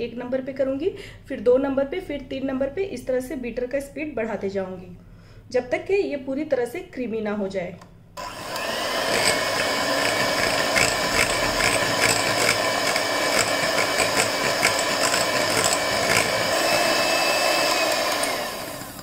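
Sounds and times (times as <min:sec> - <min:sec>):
electric hand mixer whining: 0:08.2 - 0:19.0.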